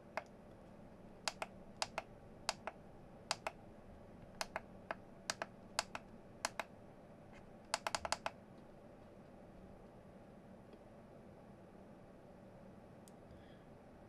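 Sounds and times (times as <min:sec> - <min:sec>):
push buttons clicking: 0:01.2 - 0:03.6, 0:04.2 - 0:06.7, 0:07.7 - 0:08.4.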